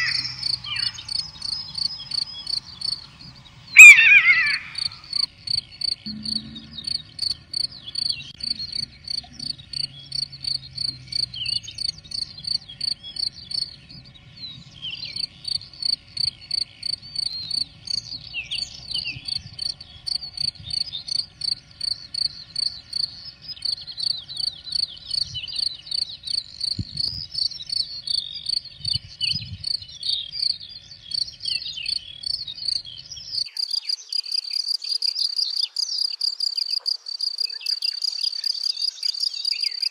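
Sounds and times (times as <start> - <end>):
cricket chirping: 0.0 - 14.1, 15.0 - 39.9
songbirds singing: 0.0 - 39.9.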